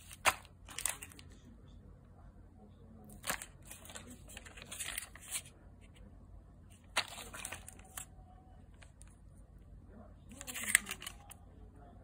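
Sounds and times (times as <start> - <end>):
plastic pouches crinkling: 0.0 - 1.2, 3.1 - 5.5, 6.8 - 8.1, 10.3 - 11.4.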